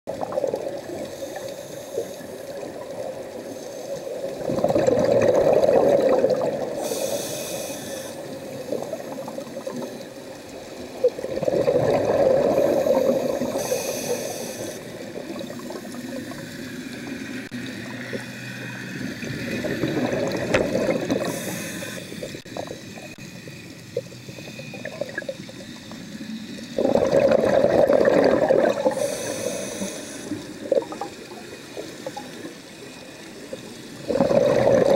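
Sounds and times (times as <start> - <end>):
underwater exhaled bubbles: 0.1 - 34.9
regulator hiss: 0.9 - 4.4, 6.7 - 11.0, 12.5 - 19.9, 21.0 - 26.8, 28.7 - 34.1.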